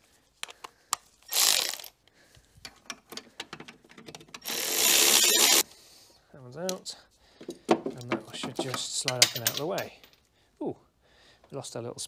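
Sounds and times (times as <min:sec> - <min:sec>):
electric ratchet running: 0:01.3 - 0:01.9, 0:04.4 - 0:05.6
tool clicking and tapping on metal: 0:02.6 - 0:04.5, 0:07.4 - 0:09.9.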